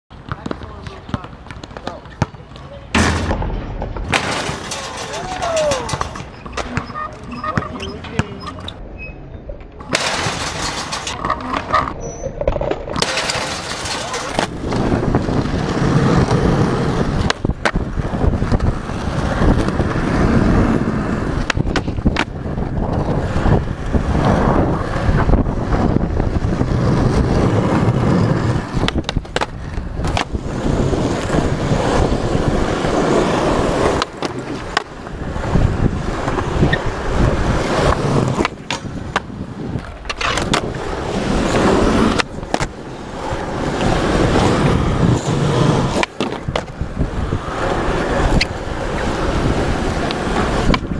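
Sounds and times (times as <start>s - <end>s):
skateboard wheels rolling on asphalt: 0.1s - 8.8s, 9.8s - 50.9s.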